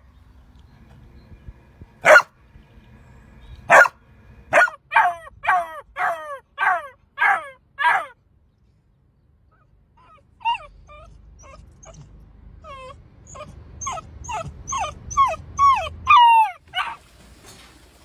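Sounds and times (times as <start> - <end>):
puppy whimpering: 10.0 - 17.0.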